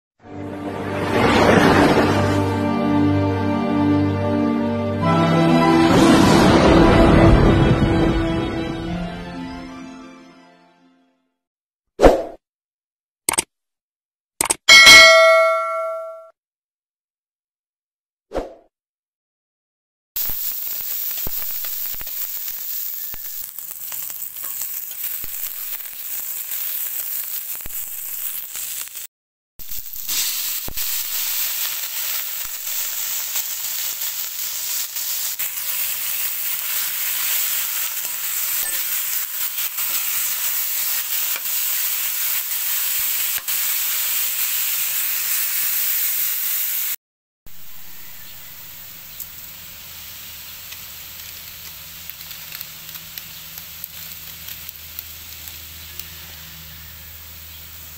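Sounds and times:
food sizzling in hot oil: 20.2s - 47.0s, 47.9s - 57.9s.

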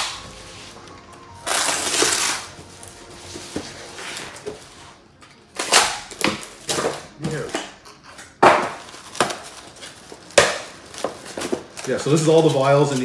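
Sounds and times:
plastic wrap crinkling: 0.0s - 5.0s, 8.7s - 13.0s.

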